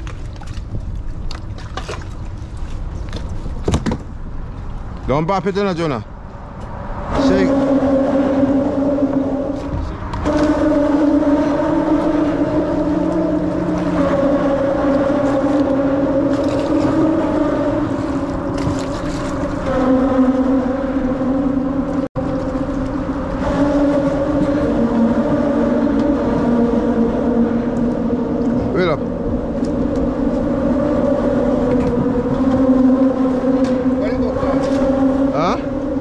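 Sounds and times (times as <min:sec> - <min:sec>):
traffic droning on bridge: 0:00.0 - 0:36.0.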